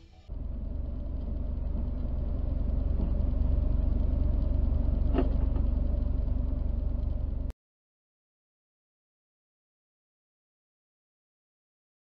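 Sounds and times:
car engine idling: 0.3s - 7.5s.

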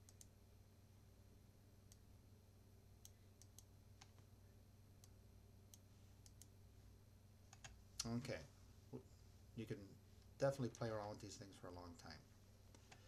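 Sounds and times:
faint computer mouse clicks: 0.0s - 0.3s, 3.0s - 4.3s, 5.0s - 6.5s
low electrical hum: 0.0s - 13.0s.

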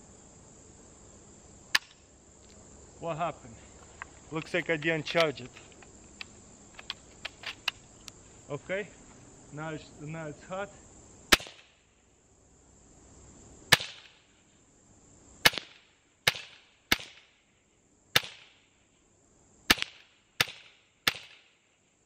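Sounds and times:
high insect trill: 0.0s - 22.0s
air rifle firing sharp cracks: 11.3s - 11.8s, 13.7s - 14.2s, 15.4s - 17.3s, 18.2s - 18.6s, 19.7s - 21.6s.

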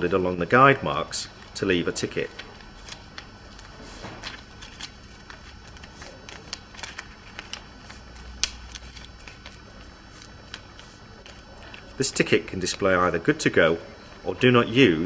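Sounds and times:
paper crinkling as folded: 1.4s - 12.8s.

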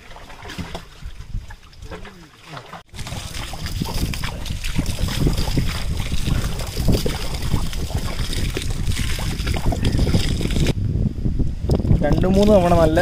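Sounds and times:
water splashing on carcass and tray: 0.0s - 10.8s.

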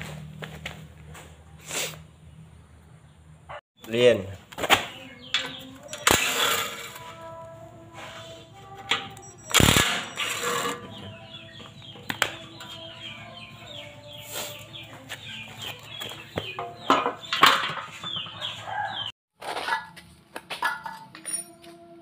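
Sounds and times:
birds chirping: 2.2s - 6.5s, 8.2s - 19.1s.

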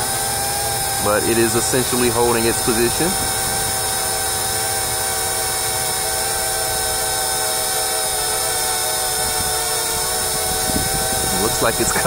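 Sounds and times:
drone propellers whining: 0.0s - 12.0s.

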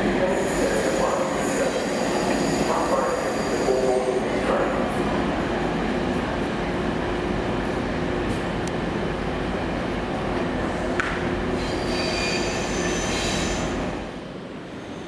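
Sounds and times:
diesel locomotive engine running: 0.0s - 14.3s
high-pitched wheel squeal: 11.6s - 13.6s.

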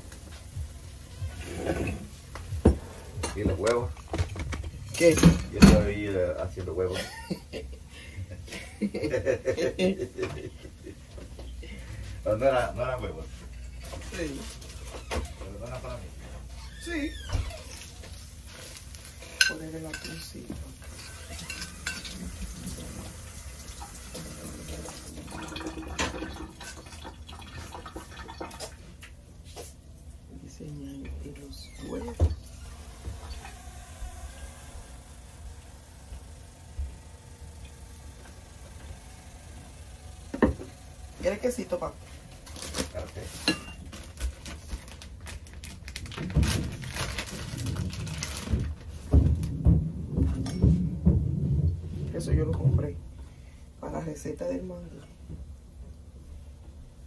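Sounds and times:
dishes and utensils clinking: 1.4s - 5.9s, 19.2s - 23.1s, 43.3s - 44.0s
plastic bag crinkling: 41.1s - 49.6s.

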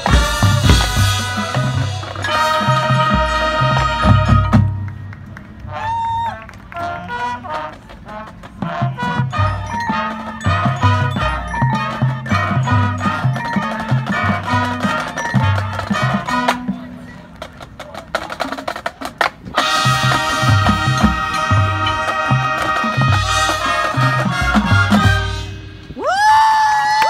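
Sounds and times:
sharp percussion hits: 0.0s - 5.2s
horns playing held chords: 0.0s - 6.0s, 6.7s - 17.0s, 19.6s - 26.0s
marching band playing: 0.0s - 26.1s.

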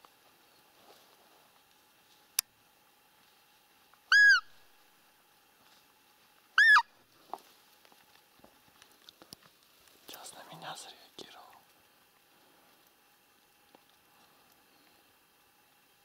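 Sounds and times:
deer call high peeps: 4.1s - 4.6s, 6.6s - 6.9s.

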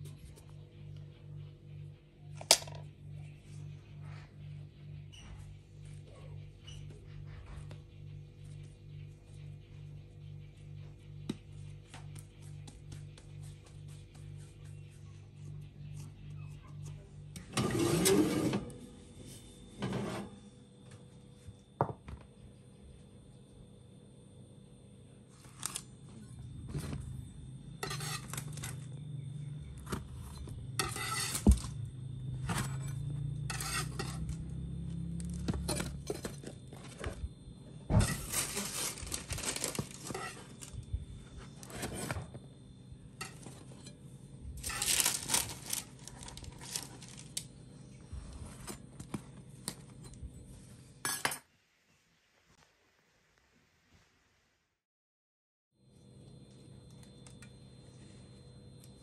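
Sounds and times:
low hum: 0.0s - 50.9s
baking tray and utensils clinking: 16.5s - 19.0s, 27.8s - 29.0s, 29.8s - 37.3s, 38.0s - 42.4s, 43.1s - 47.5s.

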